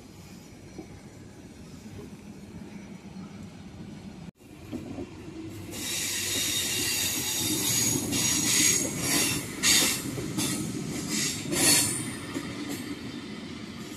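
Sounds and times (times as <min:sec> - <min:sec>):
train wheels rumbling on rails: 0:00.0 - 0:13.9
high screeching hiss from train: 0:05.6 - 0:12.3.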